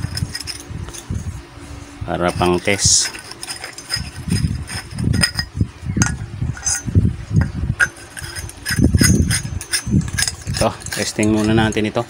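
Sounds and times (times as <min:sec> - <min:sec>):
sharp metallic clinks: 0:07.8 - 0:11.9.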